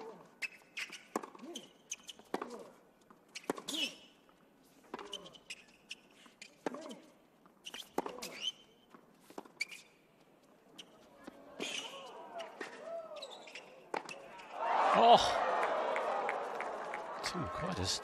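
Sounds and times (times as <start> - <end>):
racket hitting tennis ball: 1.0 - 1.5
ball bouncing on court: 1.0 - 2.7
players grunting: 14.6 - 15.6.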